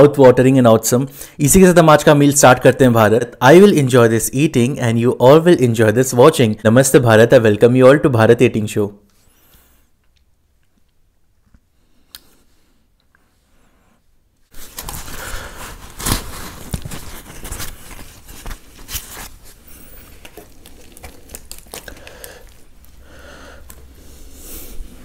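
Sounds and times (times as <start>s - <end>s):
bread tearing and rustling: 14.5s - 24.4s.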